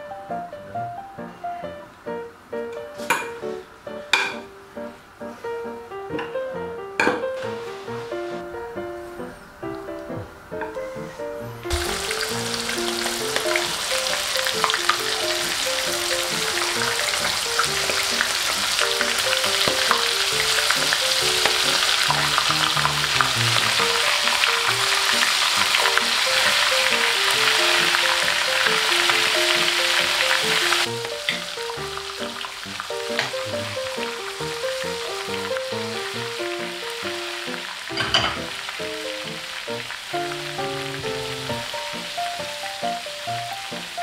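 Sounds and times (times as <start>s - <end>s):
light background music: 0.0s - 44.0s
shrimp deep-frying in oil: 11.7s - 44.0s.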